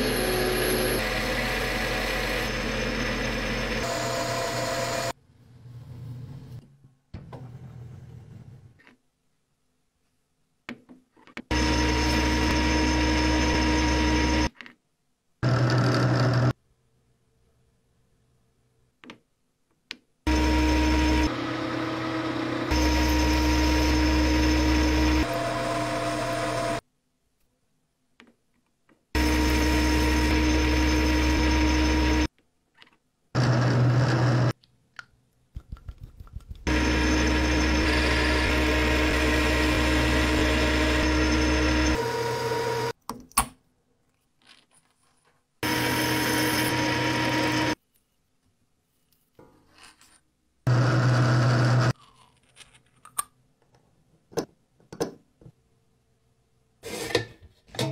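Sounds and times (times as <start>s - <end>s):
metal lathe running: 0.0s - 5.1s, 20.3s - 26.8s, 36.7s - 42.9s, 45.6s - 47.8s
metal cutting noise: 20.3s - 26.8s, 36.7s - 43.0s, 45.6s - 47.8s.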